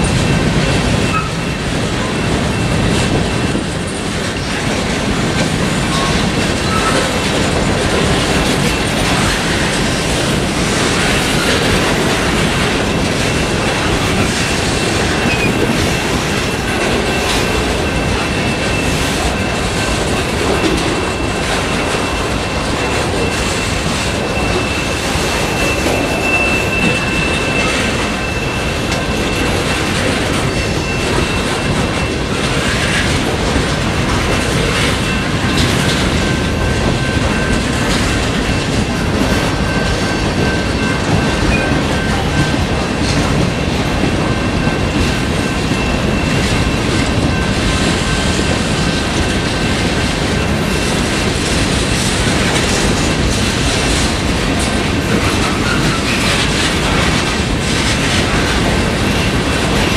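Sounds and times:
clickety-clack over rail joints: 0.0 - 59.9
freight train wheels rumbling: 0.0 - 59.9
high wheel squeal: 0.8 - 4.0, 5.8 - 33.1.

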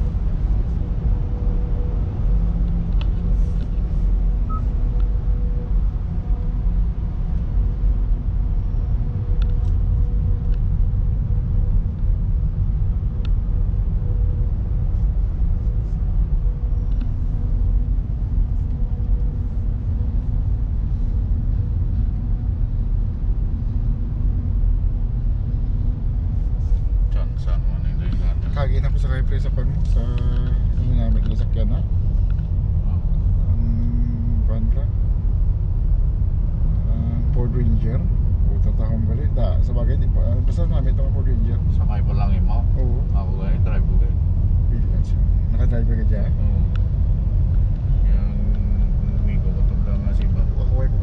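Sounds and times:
faint steady hum: 0.0 - 51.0
vehicle engine rumbling: 0.0 - 51.0.

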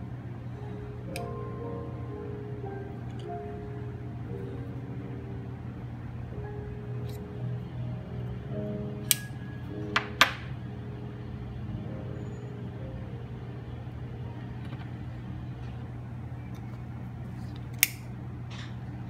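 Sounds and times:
low room hum: 0.0 - 19.0
sharp metallic clicks of tools: 17.8 - 18.0.

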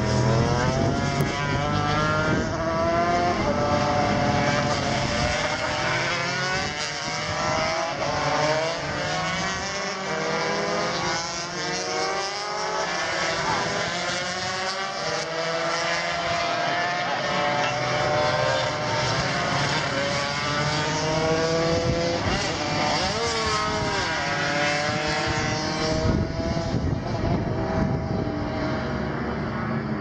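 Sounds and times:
racing motorcycle engines: 0.0 - 30.0.

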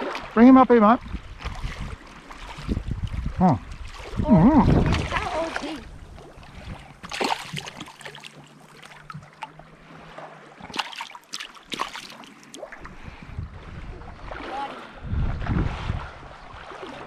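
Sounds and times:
person wading through shallow water: 0.0 - 17.0
wind buffeting microphone: 0.9 - 7.8, 12.8 - 17.0.

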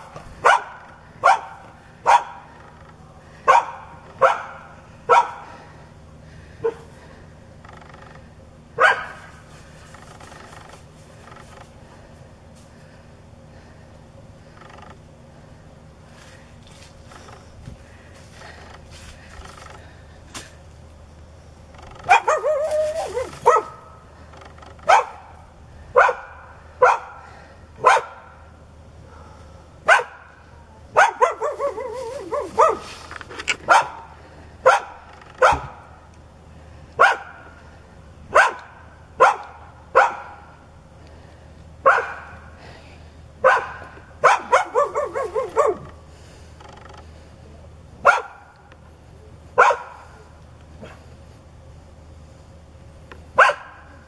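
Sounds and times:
dog barking aggressively: 0.4 - 2.5, 3.4 - 5.5, 8.8 - 9.4, 22.0 - 24.0, 24.8 - 28.4, 29.8 - 32.9, 33.6 - 35.8, 37.0 - 37.5, 38.3 - 40.5, 41.8 - 42.4, 43.4 - 46.0, 48.0 - 48.5, 49.6 - 50.0, 53.4 - 53.9.

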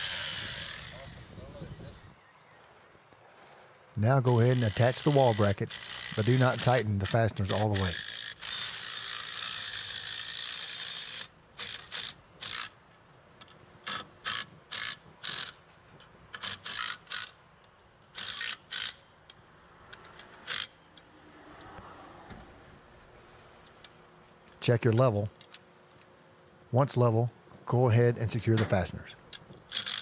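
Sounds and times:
cordless power driver running: 4.3 - 6.8.

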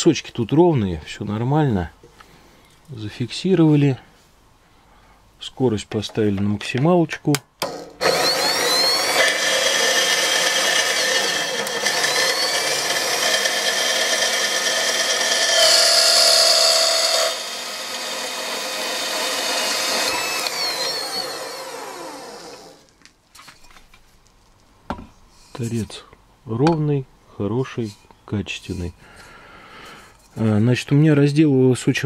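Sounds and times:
band saw cutting metal: 7.6 - 22.9
motor winding down: 8.0 - 22.9.

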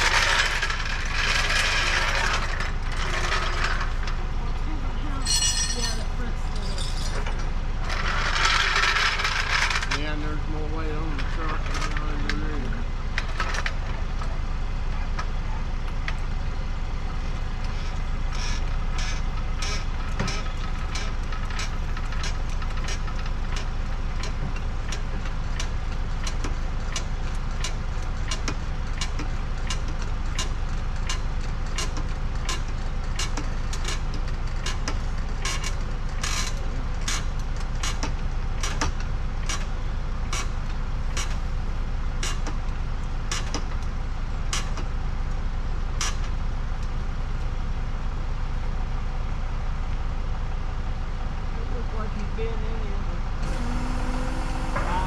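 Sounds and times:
sharp clicks and rattles: 0.0 - 4.2, 5.2 - 14.3, 17.6 - 41.4
truck engine rumbling: 0.0 - 55.0.

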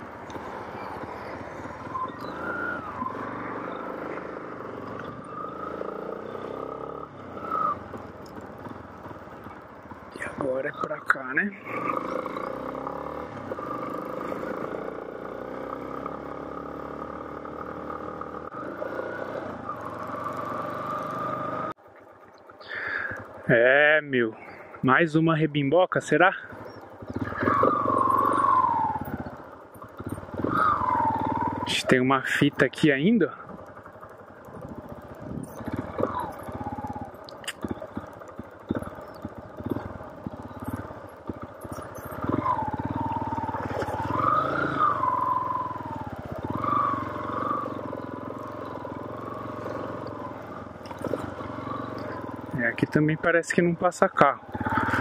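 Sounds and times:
motorcycle engine running: 0.0 - 24.9, 26.1 - 55.0
falling whining tone: 0.8 - 8.0, 27.1 - 29.4, 30.0 - 32.3, 38.7 - 53.0.

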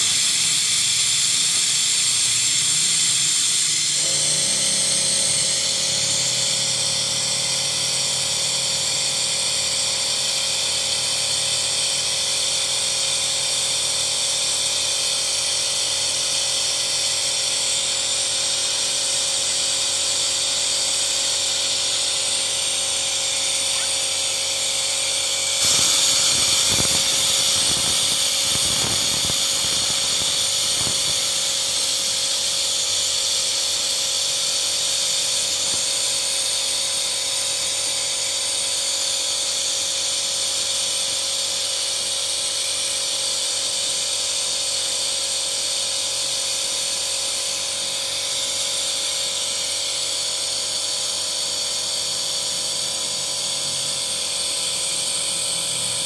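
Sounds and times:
steady whining tones: 0.0 - 38.8, 49.3 - 56.0
car engine running: 2.4 - 10.4
loud high hiss: 23.3 - 33.6.

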